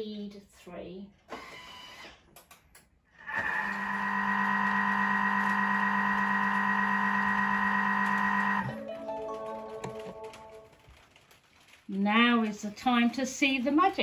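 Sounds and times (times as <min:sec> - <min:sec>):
kitchen appliance motor whining: 0:03.2 - 0:08.8.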